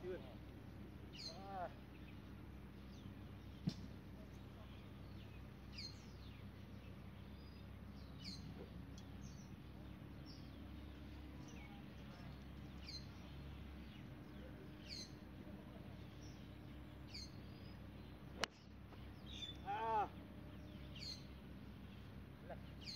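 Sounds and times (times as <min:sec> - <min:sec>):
golf club striking ball: 0:03.6 - 0:04.0.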